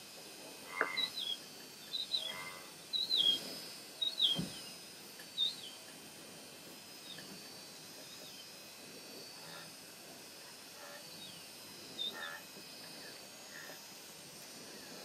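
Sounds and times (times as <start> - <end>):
lower flat bird notes: 0.7 - 4.6
bird chirping: 0.8 - 3.4, 4.0 - 4.6, 5.3 - 5.8
dull thump: 4.3 - 4.6.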